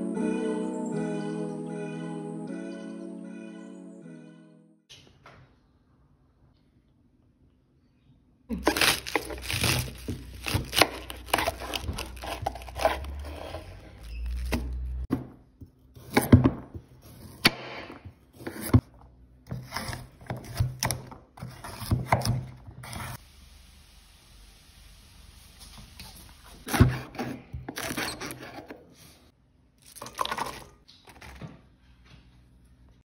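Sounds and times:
knife chopping vegetables: 8.5 - 13.7, 14.3 - 18.9, 19.5 - 23.2, 26.6 - 28.8.

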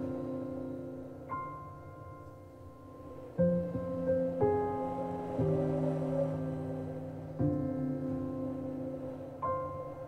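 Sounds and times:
slow keyboard music: 0.0 - 10.0.

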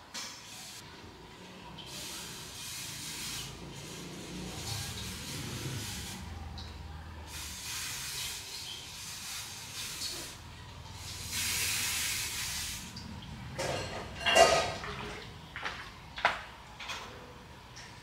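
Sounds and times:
hissing spray: 1.9 - 6.6, 7.3 - 13.0.

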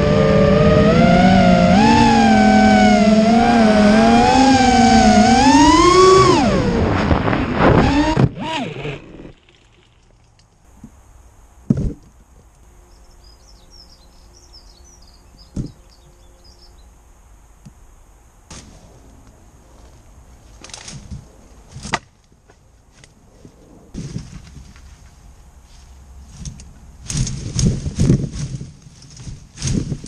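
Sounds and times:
drone motors whining: 0.0 - 10.2
drone crashing into bush: 3.1 - 9.6, 18.5 - 19.3
faint bird chirps: 12.8 - 17.0.

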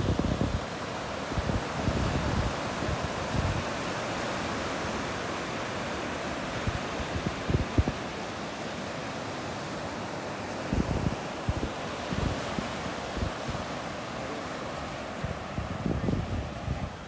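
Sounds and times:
wind bumps on microphone: 0.0 - 0.7, 1.3 - 3.7, 6.6 - 8.0, 10.7 - 13.7, 15.2 - 17.0
surf washing on beach: 0.0 - 17.0.

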